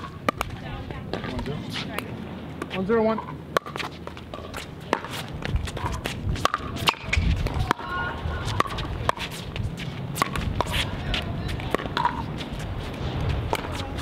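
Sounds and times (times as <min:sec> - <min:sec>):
ball bouncing on hard court: 0:03.6 - 0:12.5.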